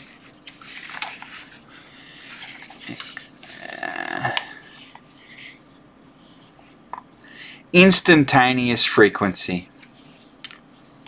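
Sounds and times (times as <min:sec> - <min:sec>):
book pages rustling: 0:00.0 - 0:03.5.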